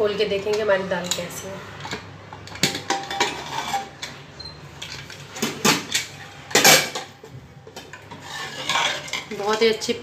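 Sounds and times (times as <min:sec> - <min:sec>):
metal lid clinking and scraping: 0:01.8 - 0:04.2, 0:07.8 - 0:09.7.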